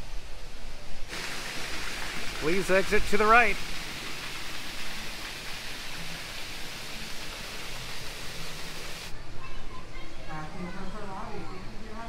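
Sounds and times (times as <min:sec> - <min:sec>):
hiss of falling water: 0:00.0 - 0:09.2.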